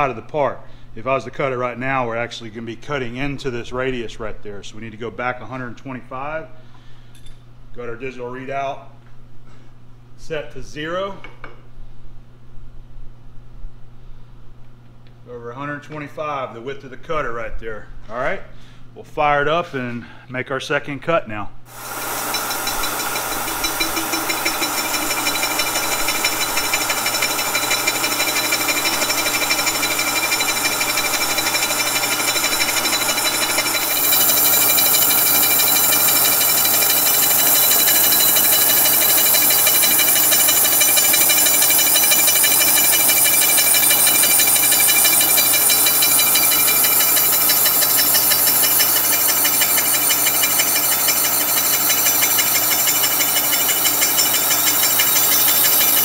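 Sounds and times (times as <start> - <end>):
milling machine saw whirring: 21.7 - 56.0.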